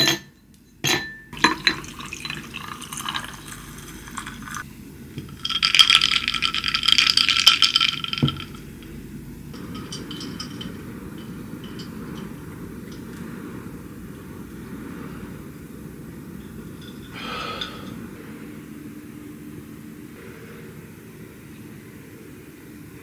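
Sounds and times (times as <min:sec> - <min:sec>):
drink pouring over ice: 0:01.4 - 0:04.6, 0:05.3 - 0:08.7
ice cubes clinking in a glass: 0:01.4 - 0:04.6, 0:05.2 - 0:08.7.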